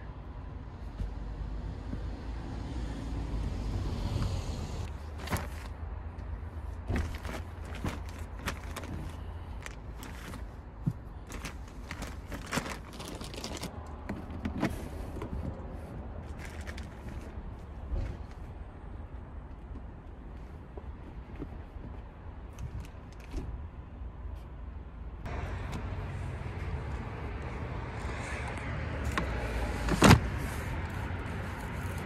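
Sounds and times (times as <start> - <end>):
fabric and bag rustling: 4.8 - 5.8, 6.8 - 13.7, 16.2 - 17.4.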